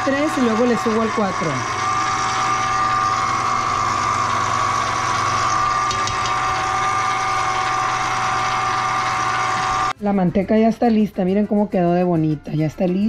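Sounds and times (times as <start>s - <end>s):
stand mixer motor humming: 0.0s - 10.0s.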